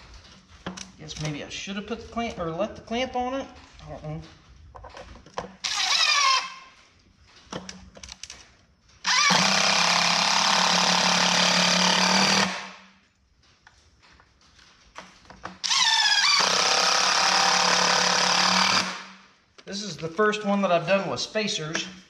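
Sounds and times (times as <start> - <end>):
handling clicks and knocks: 2.1 - 5.6, 7.1 - 9.0
cordless drill driving screws: 5.6 - 6.7, 9.0 - 12.8, 15.6 - 19.1.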